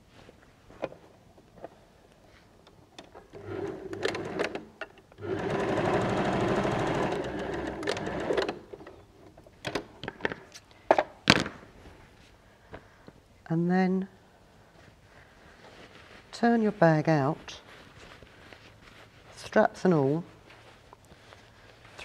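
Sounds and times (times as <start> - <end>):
sewing machine stitching: 3.3 - 8.7.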